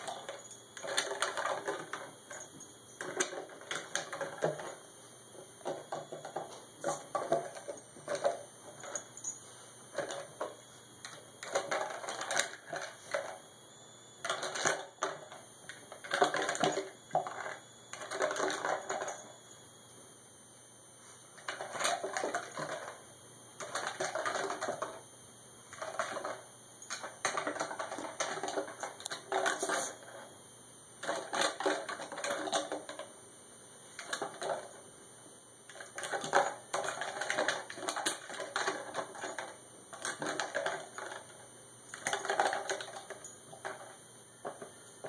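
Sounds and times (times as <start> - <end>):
plastic bottle crackling and clattering: 25.8 - 30.0, 35.7 - 41.3, 41.9 - 44.8.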